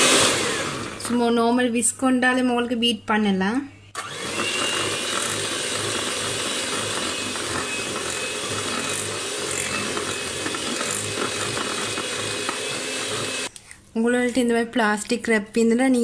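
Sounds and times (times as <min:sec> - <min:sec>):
electric hand mixer running: 0:00.0 - 0:01.3, 0:04.0 - 0:13.5.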